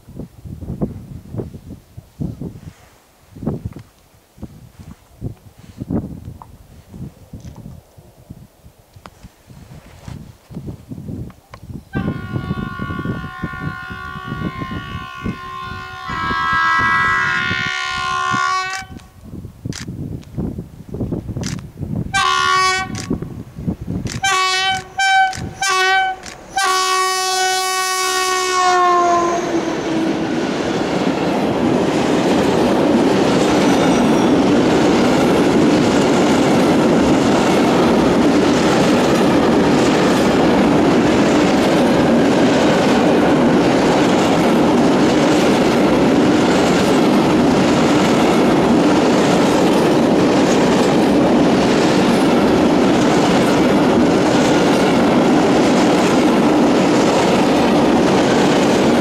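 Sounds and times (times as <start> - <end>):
locomotive horn: 11.9 - 19.0, 22.1 - 23.0, 24.2 - 30.3.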